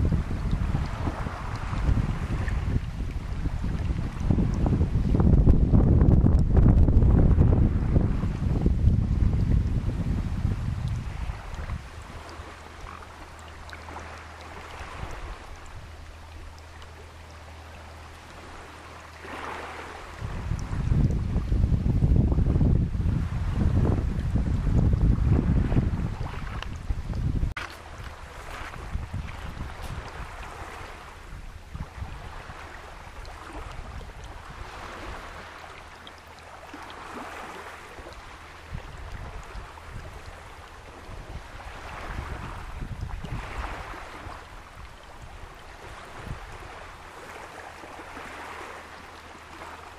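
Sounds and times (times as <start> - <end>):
surf washing over stone beach: 0.0 - 17.1, 17.7 - 49.9
water trickling over pebbles: 8.4 - 22.8, 26.1 - 46.7
steady low rumble: 20.0 - 30.6.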